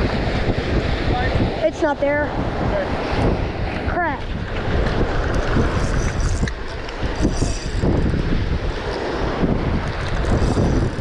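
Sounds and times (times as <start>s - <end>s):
surf: 0.0s - 11.0s
wind buffeting microphone: 0.0s - 11.0s
fishing reel being cranked: 5.4s - 8.2s, 10.0s - 11.0s.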